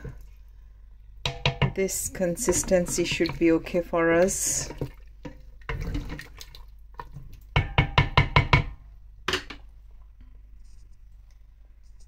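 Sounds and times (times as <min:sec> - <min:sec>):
wooden spoon knocking metal pot: 0:01.2 - 0:06.0, 0:07.5 - 0:09.6.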